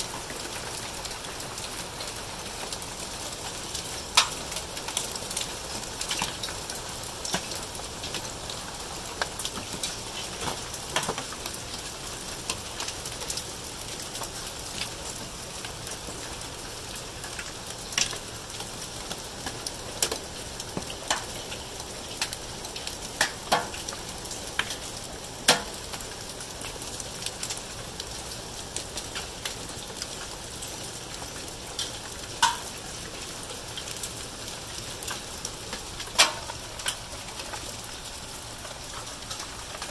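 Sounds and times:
hail and rain hissing: 0:00.0 - 0:39.9
hailstones clicking on hard surfaces: 0:03.7 - 0:13.4, 0:17.3 - 0:27.4, 0:31.8 - 0:39.9.

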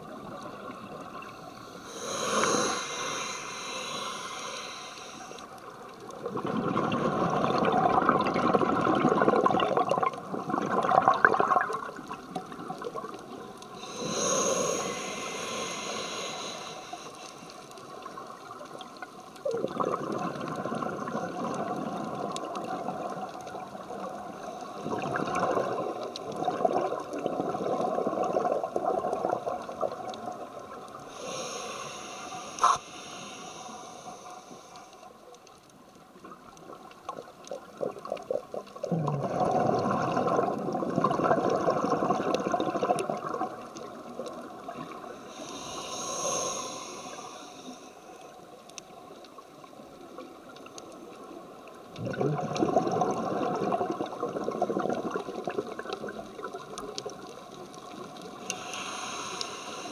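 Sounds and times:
exhaled bubbles underwater: 0:00.0 - 0:17.1, 0:17.8 - 0:32.0, 0:36.2 - 0:59.9
regulator inhalation hiss: 0:01.4 - 0:05.6, 0:13.7 - 0:17.7, 0:31.0 - 0:35.2, 0:45.2 - 0:48.4, 0:58.4 - 0:59.9.

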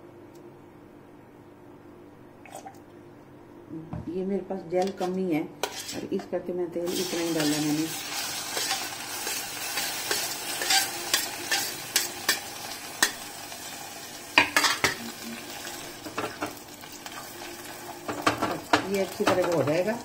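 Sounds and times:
oil sizzling in a pan: 0:06.8 - 0:20.0.

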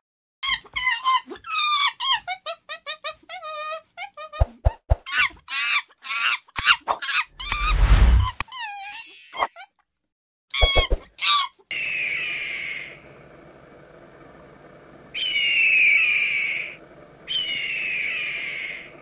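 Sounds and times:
short high squeaks: 0:07.4 - 0:09.5
bird of prey screaming: 0:10.6 - 0:19.0
faint outdoor background: 0:10.7 - 0:19.0.

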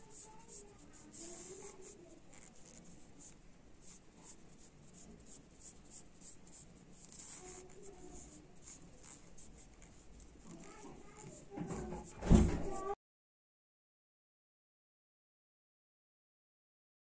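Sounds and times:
yarn rubbing on metal skewer: 0:00.0 - 0:13.0.

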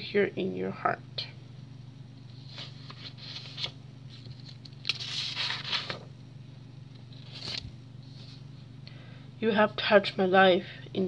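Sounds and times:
steady low hum: 0:00.0 - 0:11.0
paper rustling: 0:02.3 - 0:06.1, 0:07.0 - 0:08.4.

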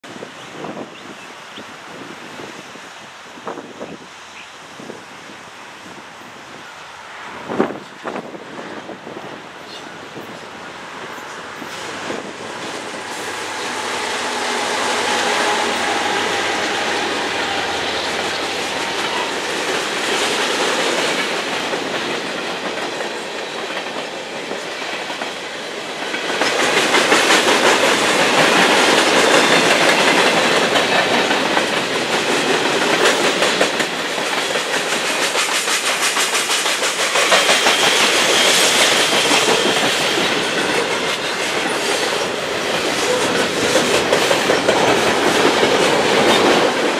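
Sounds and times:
diesel locomotives passing: 0:00.0 - 0:46.9
freight car wheels clickety-clack: 0:26.0 - 0:46.9.

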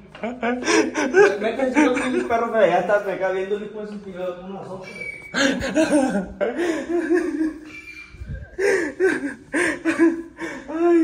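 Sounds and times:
young man laughing hard: 0:00.2 - 0:02.6, 0:05.3 - 0:07.8, 0:08.4 - 0:11.0.

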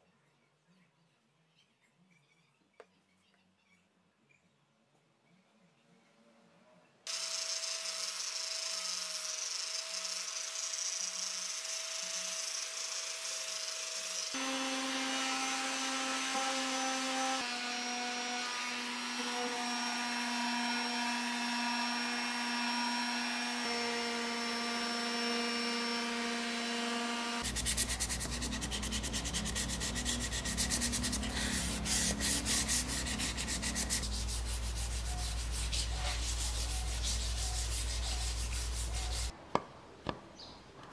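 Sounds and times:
sandpaper rasping by hand: 0:07.1 - 0:15.0, 0:27.4 - 0:39.3
orbital sander whining on wood: 0:07.1 - 0:39.3.

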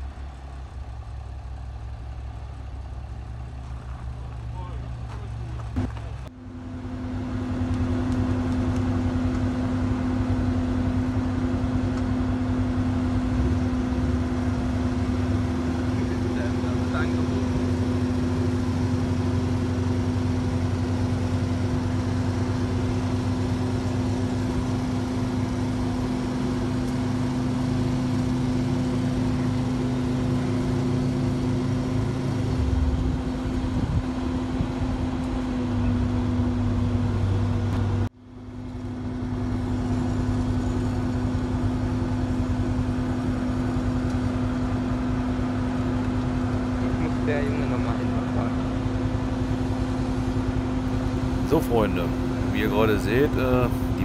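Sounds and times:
vehicle engine running: 0:00.0 - 0:54.0.

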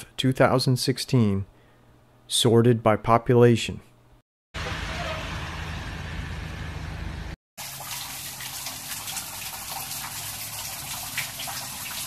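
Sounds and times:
low hum: 0:04.6 - 0:07.4
sharp close drips: 0:07.6 - 0:12.0.

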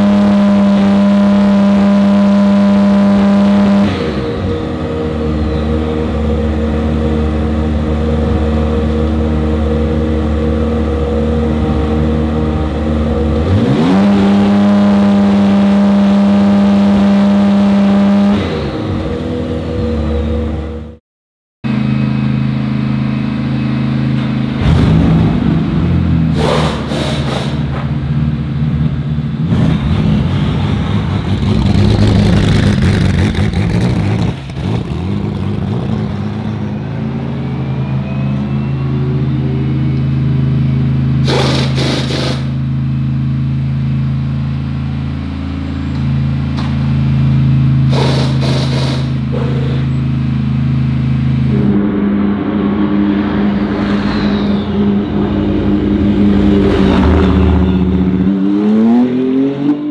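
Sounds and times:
race car engine idling and accelerating: 0:00.0 - 0:21.0, 0:21.6 - 0:59.9
short hissing bursts: 0:41.3 - 0:42.6, 0:47.9 - 0:49.2.

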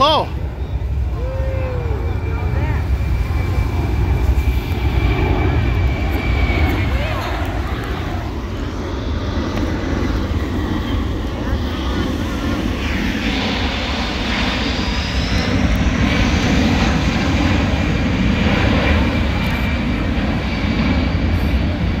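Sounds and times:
jet plane flying low: 0:00.0 - 0:22.0.

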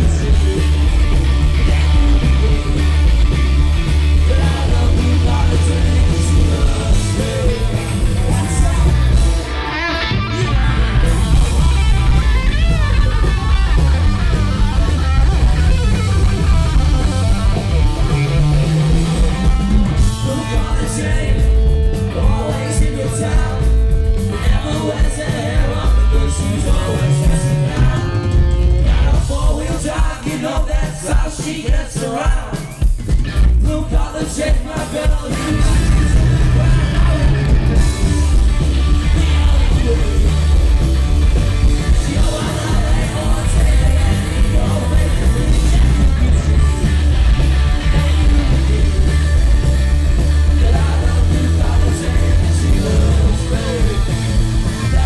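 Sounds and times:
electric guitar lead: 0:00.0 - 0:30.2, 0:34.7 - 0:55.0
bass: 0:00.0 - 0:55.0
drums: 0:00.0 - 0:55.0
person singing: 0:04.1 - 0:11.2, 0:20.0 - 0:32.8, 0:33.6 - 0:40.6, 0:41.8 - 0:49.3, 0:50.5 - 0:55.0.

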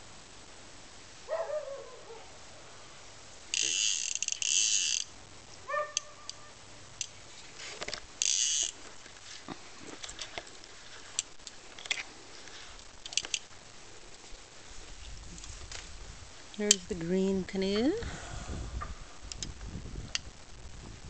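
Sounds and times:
fishing reel clicker buzzing: 0:03.5 - 0:05.1, 0:08.2 - 0:08.8
rod and reel handling clicks: 0:03.5 - 0:05.1, 0:07.0 - 0:09.2, 0:09.9 - 0:12.1, 0:12.8 - 0:13.5, 0:19.3 - 0:19.5.

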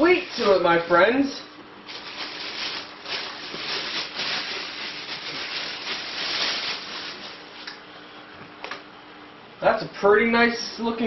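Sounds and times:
plastic wrapping crinkling: 0:00.0 - 0:00.7, 0:01.8 - 0:07.7.

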